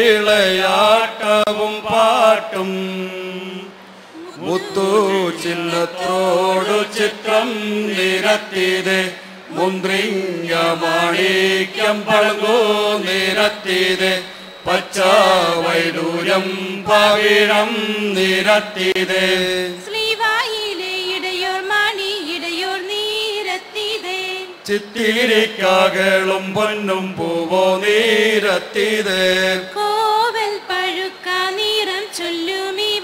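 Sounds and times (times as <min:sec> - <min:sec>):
men and women chanting: 0:00.0 - 0:19.8.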